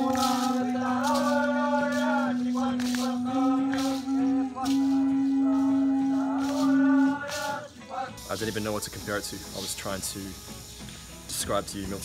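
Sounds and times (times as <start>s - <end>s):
percussive beat: 0.0s - 7.6s
group chanting: 0.0s - 8.3s.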